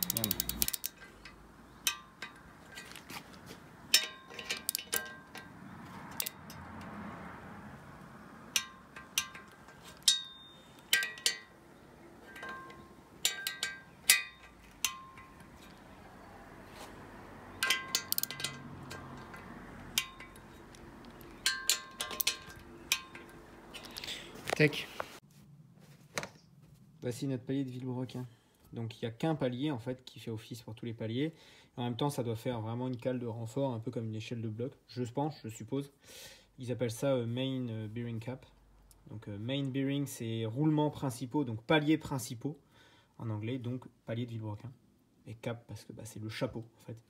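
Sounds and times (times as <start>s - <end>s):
metal tools clinking: 0.0s - 6.6s, 8.6s - 11.6s, 12.2s - 15.8s, 17.5s - 24.6s.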